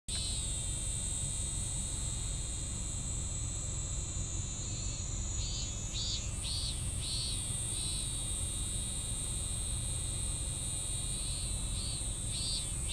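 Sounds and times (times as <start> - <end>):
cicada pulsing song: 0.1 - 12.9
cicadas shrill drone: 0.1 - 12.9
low steady rumble: 0.1 - 12.9.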